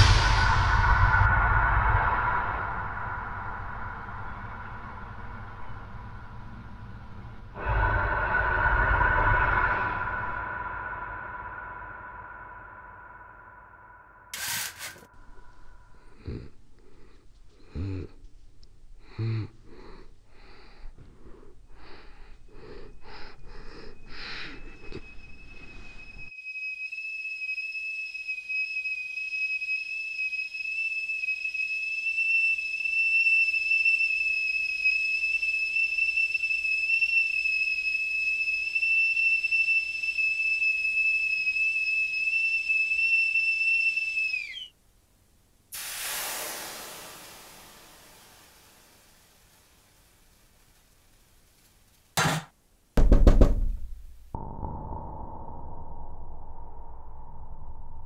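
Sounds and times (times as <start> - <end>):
kettle whistling: 14.3 - 15.5, 24.1 - 44.8, 45.8 - 49.6
short pulses: 14.3 - 15.5
burst of hiss: 45.7 - 50.5.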